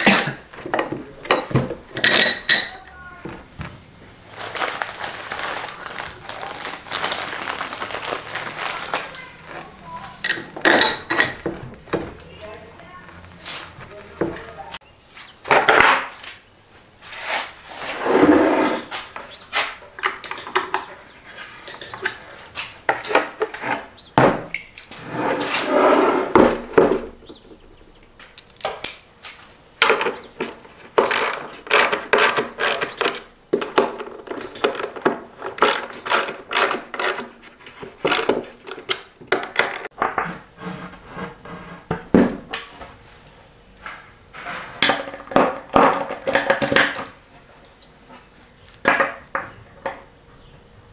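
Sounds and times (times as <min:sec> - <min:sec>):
scraping sounds: 0:04.2 - 0:15.4, 0:16.1 - 0:20.0, 0:24.9 - 0:26.6, 0:42.7 - 0:44.8
metal hardware clinking: 0:10.2 - 0:11.5, 0:31.0 - 0:33.3, 0:35.5 - 0:37.3, 0:38.1 - 0:38.4.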